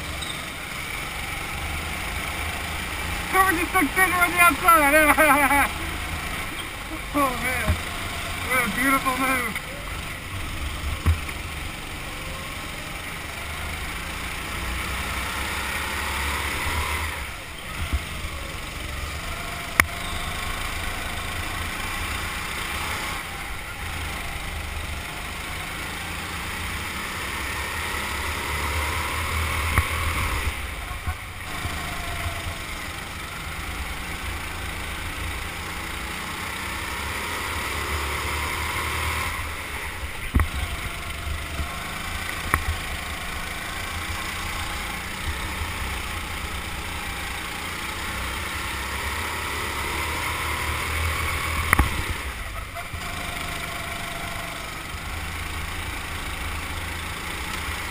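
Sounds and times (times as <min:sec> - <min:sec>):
go-kart motor revving: 0:00.0 - 0:57.9.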